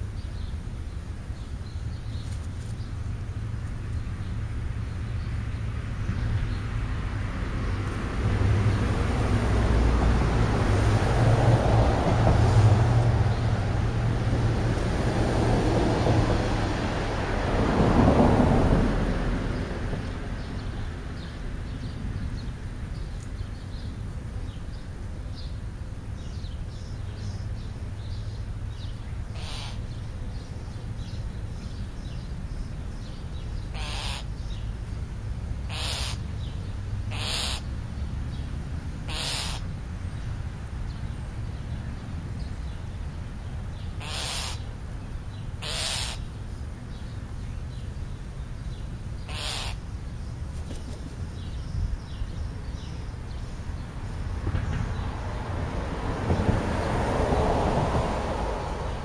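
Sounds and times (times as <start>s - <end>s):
small birds chirping: 0.0s - 6.7s, 20.0s - 55.2s
crow cawing: 29.4s - 29.8s, 33.7s - 34.3s, 35.7s - 36.2s, 37.1s - 37.6s, 39.1s - 39.6s, 44.0s - 44.6s, 45.6s - 46.2s, 49.3s - 49.8s.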